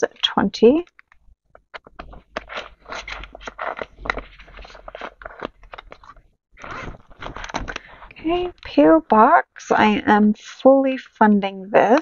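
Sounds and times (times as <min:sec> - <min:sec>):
paper and plastic rustling: 0:01.6 - 0:08.8.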